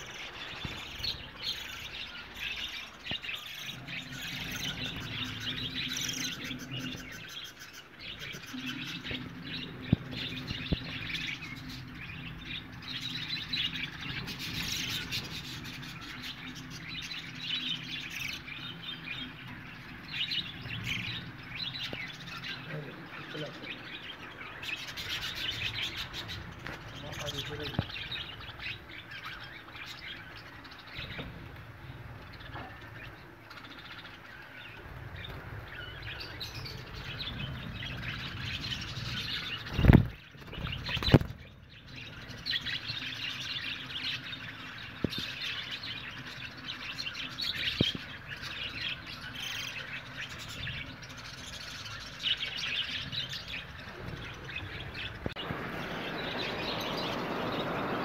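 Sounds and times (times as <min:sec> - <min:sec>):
budgerigars chirping: 0:00.0 - 0:58.0.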